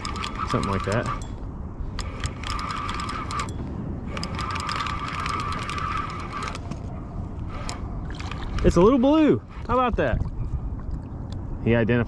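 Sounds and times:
fishing reel whirring and clicking: 0.0s - 6.9s, 7.5s - 9.0s.

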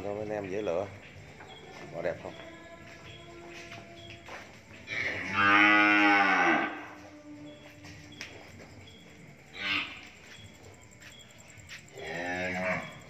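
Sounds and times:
cattle mooing: 4.9s - 6.9s.

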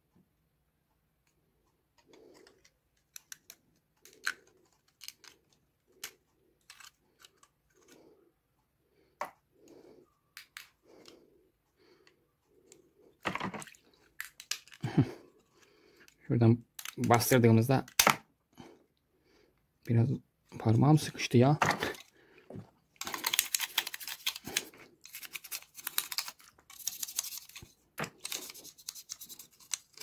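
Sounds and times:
plastic clicks and rattles: 2.0s - 8.0s, 16.0s - 18.2s.

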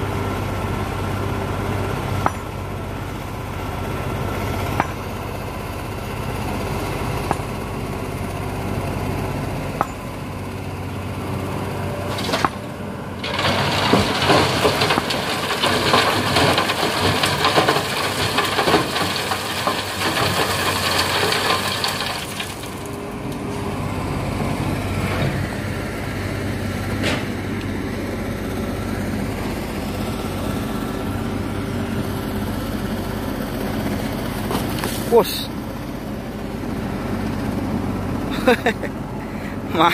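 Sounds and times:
heavy diesel machinery running: 0.0s - 39.9s
gravel pouring into truck bed: 13.1s - 23.0s.

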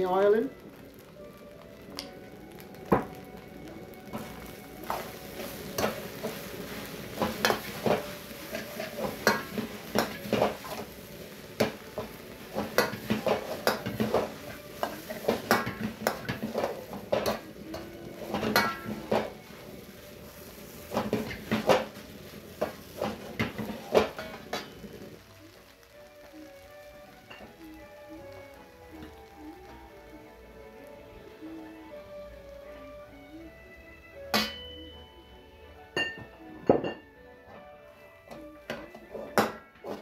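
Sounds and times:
rice sizzling: 0.0s - 40.0s
ladle scraping metal wok: 4.9s - 10.9s.

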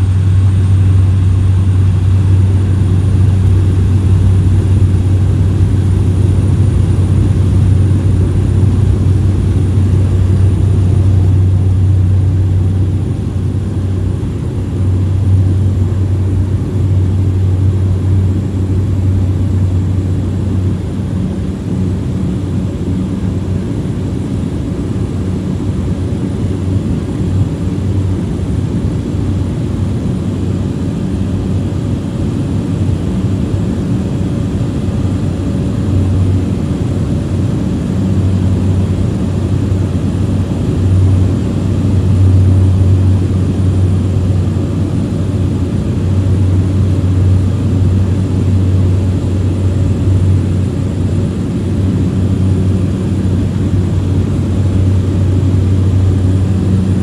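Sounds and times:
airplane engine and propeller drone: 0.0s - 57.0s.

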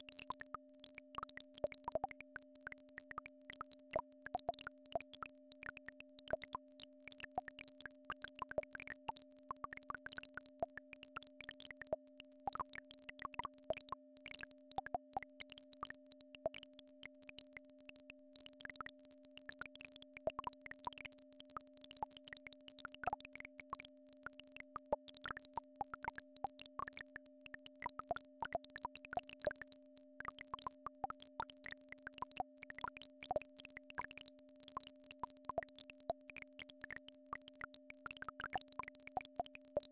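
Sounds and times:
sharp clicks and pops: 19.4s - 39.9s.

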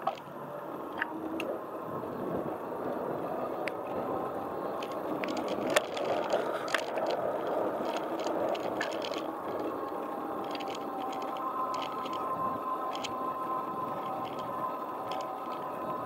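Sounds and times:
wheels rolling on asphalt: 0.0s - 16.0s
frame rattling and ticking: 4.8s - 13.2s.

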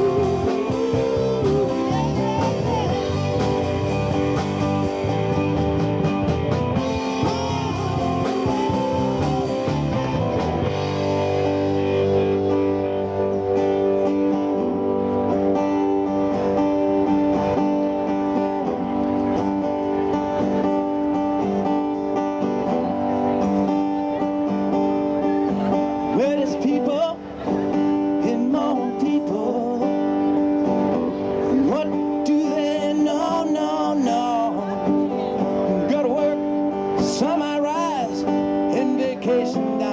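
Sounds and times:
man singing: 0.0s - 4.8s, 26.0s - 30.5s, 31.4s - 39.9s
cymbals and drums: 0.0s - 11.7s
rock band playing: 0.0s - 39.9s.

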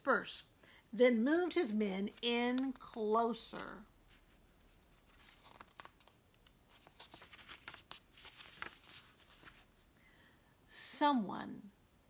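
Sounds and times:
paper pages rustling: 2.0s - 9.9s.

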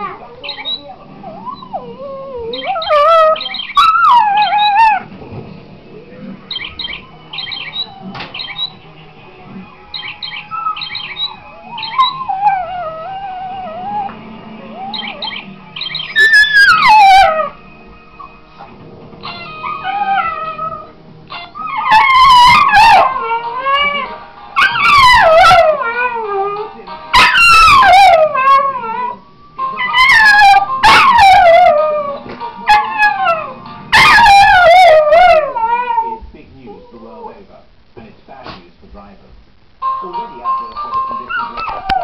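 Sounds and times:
dog howling: 0.0s - 5.1s, 10.0s - 17.6s, 19.3s - 29.2s, 29.8s - 37.4s, 41.3s - 42.0s
music playing: 0.0s - 42.0s.

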